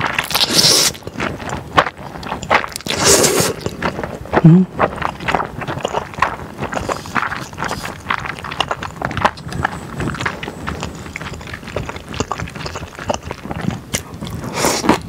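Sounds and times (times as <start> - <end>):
chewing with wet mouth sounds: 0.0 - 15.0
slurping noodles: 0.2 - 1.4, 2.2 - 4.1, 5.7 - 15.0
person humming: 4.4 - 4.7.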